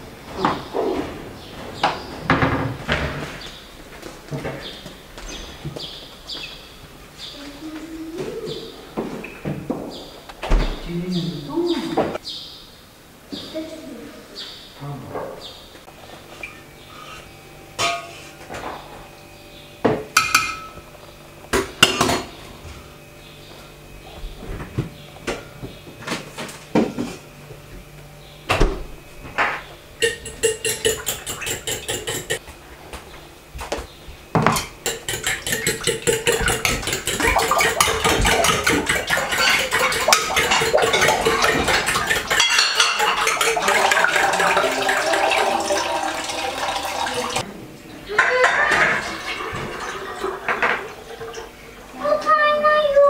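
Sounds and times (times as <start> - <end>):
metal spoon clinking on a pot: 30.0 - 32.4, 34.8 - 43.8.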